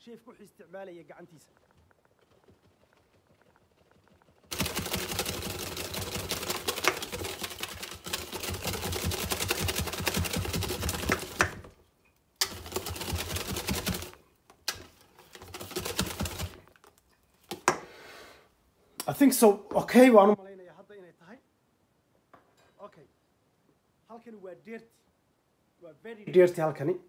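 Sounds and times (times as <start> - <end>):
batter beaten in a metal bowl: 4.5 - 11.7, 12.4 - 16.7.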